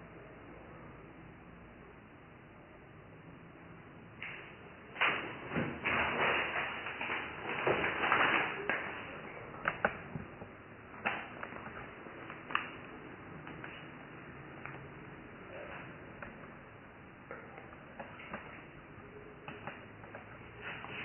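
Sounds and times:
plastic bag rustling: 4.9 - 14.9.

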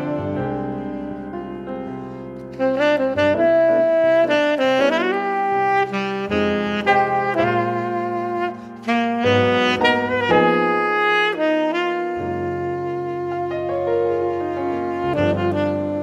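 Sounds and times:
melody over held chords: 4.8 - 16.0.

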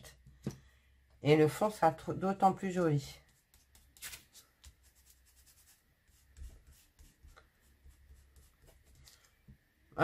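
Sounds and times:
sponge dabbing on paper: 2.6 - 9.4.

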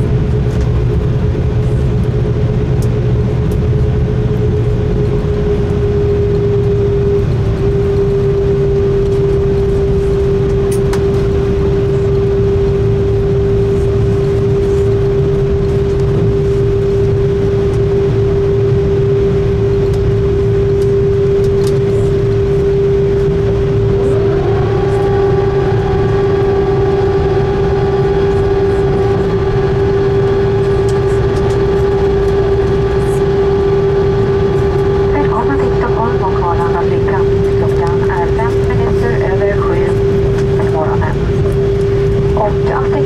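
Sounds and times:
aircraft engine hum: 0.0 - 43.0
low rumble: 0.0 - 43.0
rising whine: 0.0 - 43.0.

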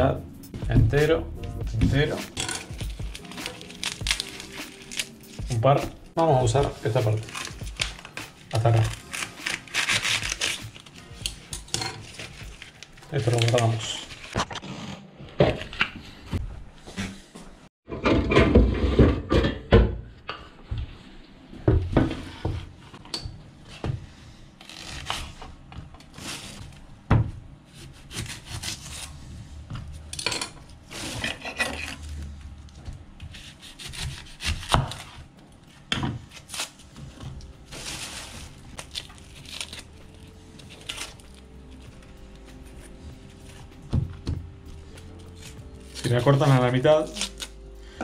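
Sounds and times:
onion skin scraping and rubbing: 1.9 - 14.9, 24.6 - 25.4, 33.3 - 35.2, 36.3 - 36.8, 37.7 - 43.8, 44.6 - 47.6.

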